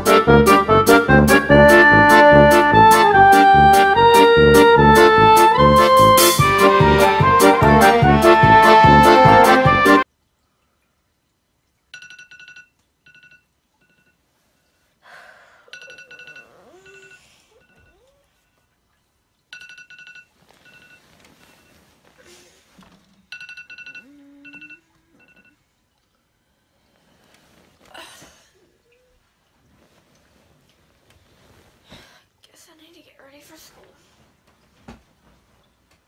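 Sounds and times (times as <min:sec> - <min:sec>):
woman groaning drowsily: 0:15.0 - 0:17.6, 0:24.0 - 0:25.3, 0:27.9 - 0:28.8
phone alarm beeping: 0:19.6 - 0:21.8
bedding rustling: 0:20.3 - 0:23.3, 0:27.0 - 0:28.4, 0:29.2 - 0:32.2, 0:34.0 - 0:36.0.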